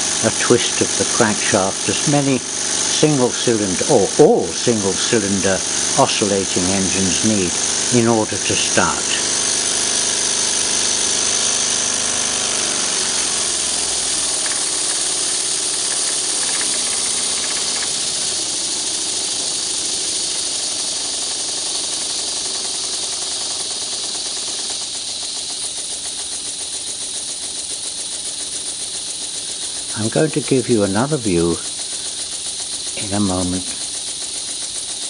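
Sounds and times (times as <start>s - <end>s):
compressed air engine hissing: 0.0s - 35.0s.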